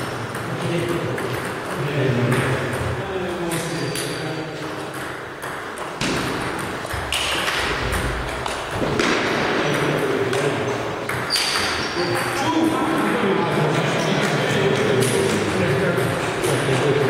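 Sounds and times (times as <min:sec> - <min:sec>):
ping pong ball hitting paddles: 0:00.0 - 0:17.0
ball bouncing on table: 0:04.9 - 0:12.3.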